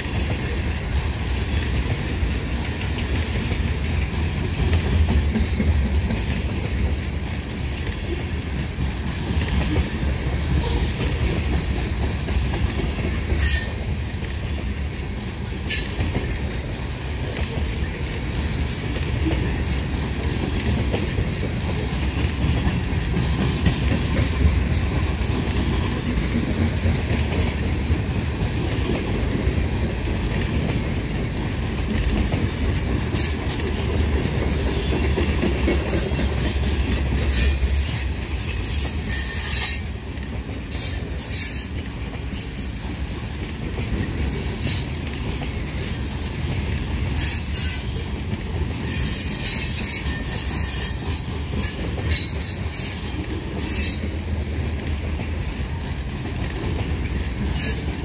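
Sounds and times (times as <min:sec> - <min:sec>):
train wheels rumbling on rail: 0:00.0 - 0:58.0
wheel flange squeals: 0:40.7 - 0:43.2.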